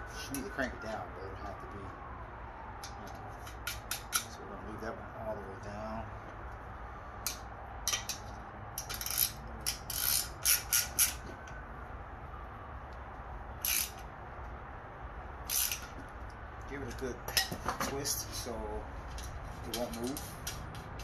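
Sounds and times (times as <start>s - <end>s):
wrench ratcheting: 8.8s - 11.2s, 13.6s - 14.0s, 15.4s - 16.0s.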